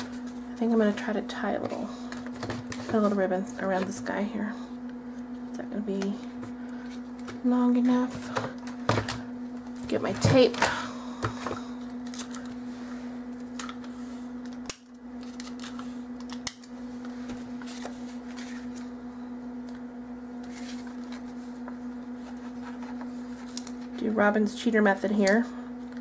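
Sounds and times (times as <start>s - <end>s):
steady low hum: 0.0s - 26.0s
faint clicks and rustles of tape: 19.6s - 24.1s.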